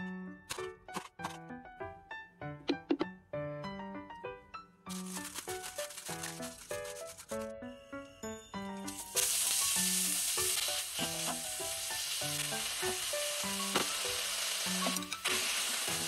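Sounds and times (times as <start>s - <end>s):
light background music: 0.0s - 16.0s
meat sizzling in oil: 8.8s - 16.0s.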